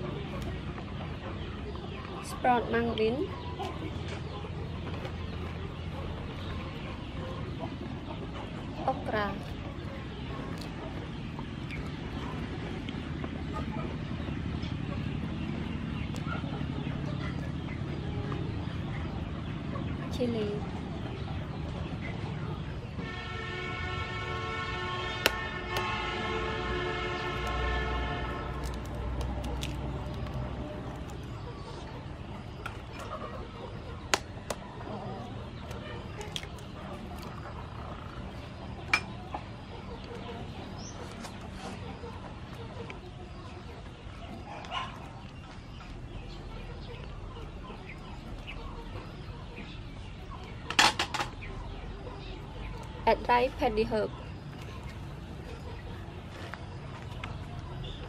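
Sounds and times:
chickens clucking faintly: 0.0 - 58.0
horn-like tone: 23.0 - 28.4.

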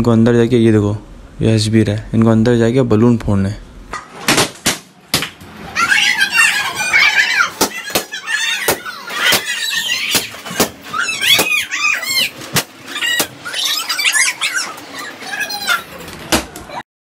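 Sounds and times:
children squealing: 5.6 - 16.1.

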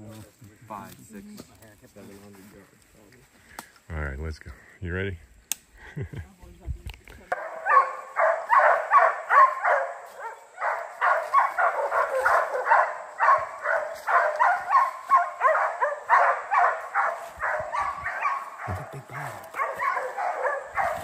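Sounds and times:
dogs barking rapidly: 7.3 - 21.0.

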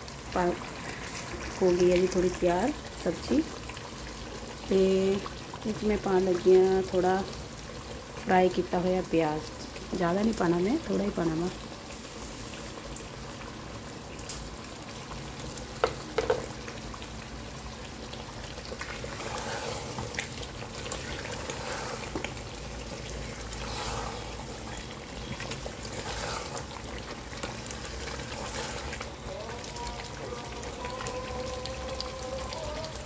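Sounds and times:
curry simmering in a pot: 0.0 - 33.0
wooden spatula stirring: 18.6 - 31.5.

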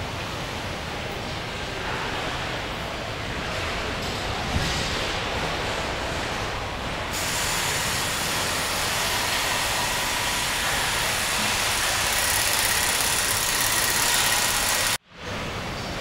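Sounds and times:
hissing factory machinery: 0.0 - 16.0
faint machine whines: 7.2 - 15.0.

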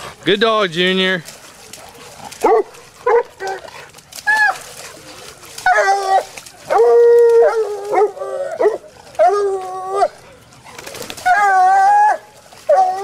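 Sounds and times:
hound baying: 1.7 - 10.3
puppies barking and yelping: 1.7 - 13.0.

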